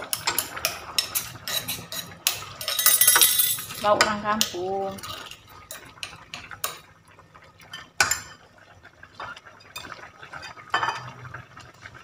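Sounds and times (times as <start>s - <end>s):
ladle scraping metal pot: 0.0s - 6.8s.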